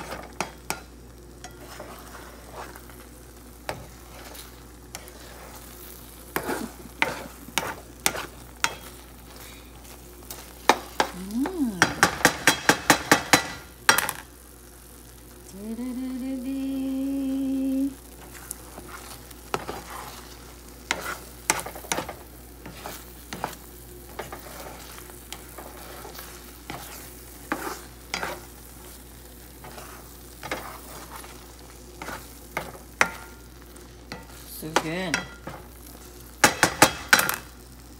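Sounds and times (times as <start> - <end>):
spatula scraping frying pan: 0.0 - 11.2, 18.0 - 37.4
light sizzle: 0.0 - 37.9
person humming: 11.0 - 12.2, 15.5 - 18.0.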